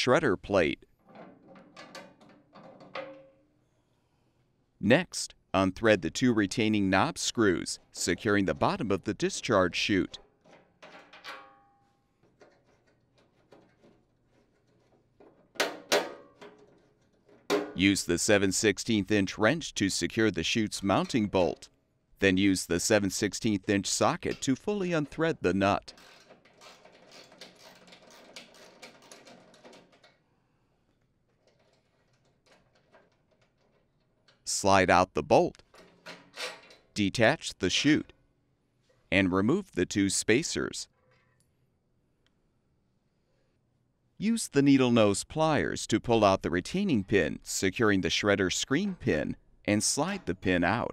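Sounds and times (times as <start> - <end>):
faint clicks and knocks: 12.2 - 17.6, 30.9 - 34.5
ratchet clicking: 26.0 - 29.3.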